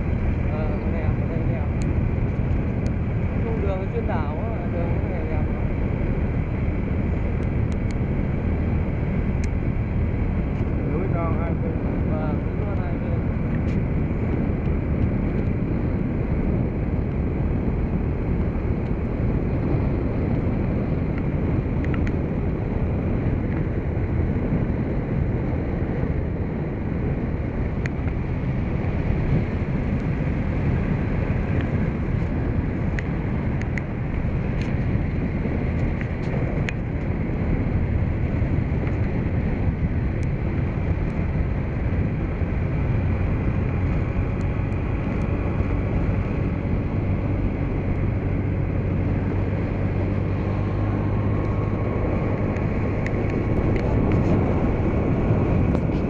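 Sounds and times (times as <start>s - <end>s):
bike road noise: 0.0s - 56.0s
wind buffeting microphone: 0.0s - 56.0s
light ticks: 7.4s - 8.0s, 21.1s - 22.2s, 32.9s - 33.9s, 34.5s - 34.8s.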